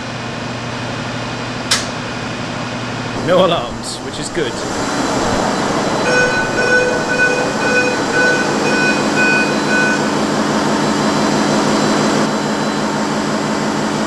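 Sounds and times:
engine room machinery drone: 0.0s - 14.0s
electronic alarm beeping: 5.5s - 11.0s.

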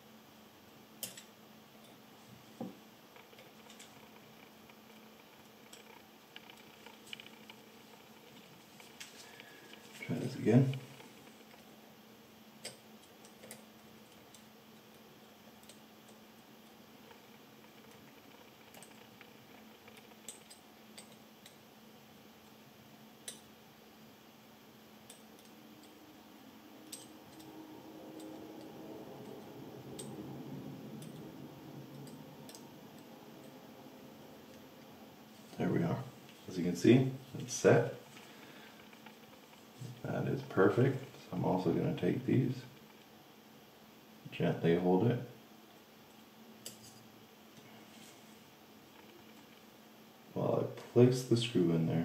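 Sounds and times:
faint steady hum: 0.0s - 52.0s
tool clicks on small metal parts: 1.0s - 2.0s.

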